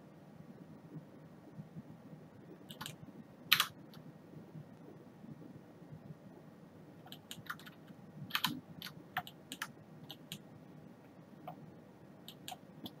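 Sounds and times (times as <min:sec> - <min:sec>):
computer keyboard clicking: 0:02.7 - 0:03.8, 0:07.1 - 0:10.4, 0:12.3 - 0:13.0.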